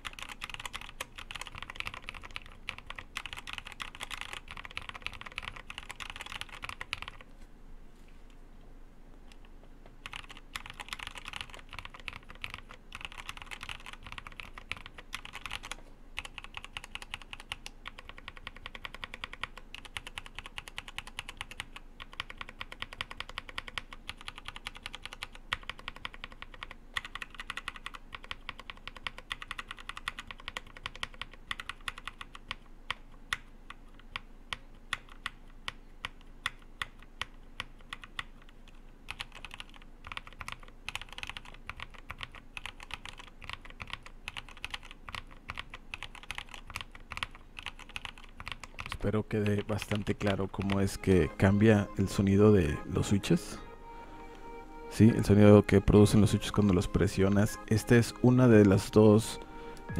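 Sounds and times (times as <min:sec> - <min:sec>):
mechanical keyboard typing: 0:00.0 - 0:07.2, 0:10.0 - 0:35.4, 0:36.0 - 0:50.9.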